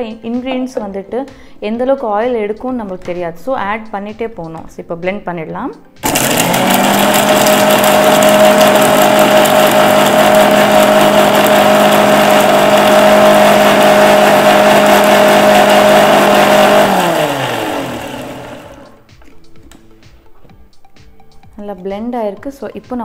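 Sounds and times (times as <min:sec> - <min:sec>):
electric mixer grinder running: 0:06.0 - 0:19.1.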